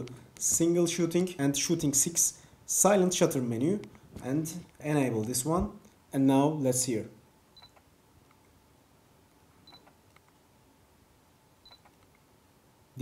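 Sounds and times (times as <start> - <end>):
short high camera beeps: 7.6 - 7.8, 9.6 - 9.9, 11.6 - 11.9.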